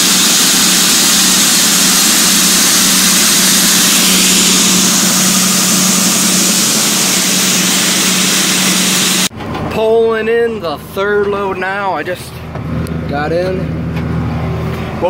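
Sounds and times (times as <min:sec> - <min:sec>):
auger motor humming: 0:00.0 - 0:09.3
grain pouring: 0:00.0 - 0:09.3.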